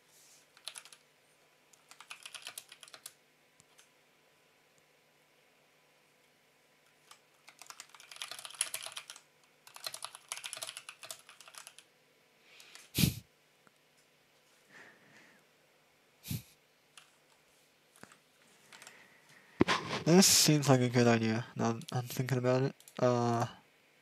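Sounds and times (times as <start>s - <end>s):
typing on computer keyboard: 0.5s - 1.0s, 1.7s - 3.9s, 7.0s - 11.9s, 17.0s - 17.4s, 18.0s - 18.9s.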